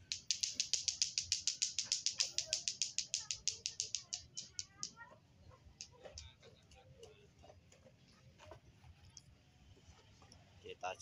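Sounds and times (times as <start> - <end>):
rapid high-pitched clicks: 0.0 - 5.0.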